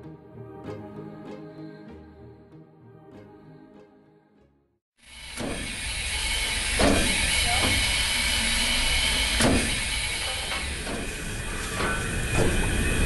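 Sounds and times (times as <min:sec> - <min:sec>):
steam hissing from locomotive: 0:05.0 - 0:13.0
sharp metallic knocks: 0:05.3 - 0:08.2, 0:09.0 - 0:12.8.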